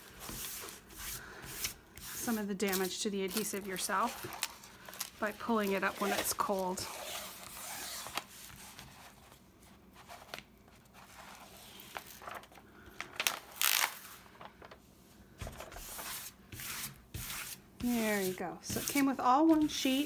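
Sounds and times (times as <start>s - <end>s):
plastic sheet crinkling: 2.2s - 8.9s, 10.1s - 14.8s
film peeling off adhesive: 13.2s - 14.0s.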